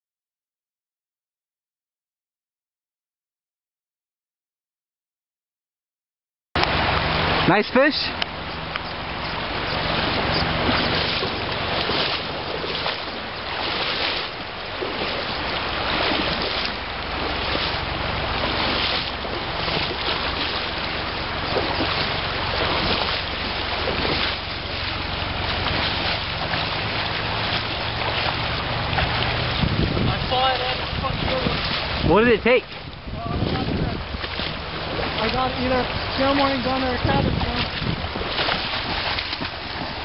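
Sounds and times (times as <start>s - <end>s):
river current rushing: 6.6s - 40.0s
wind buffeting microphone: 8.1s - 40.0s.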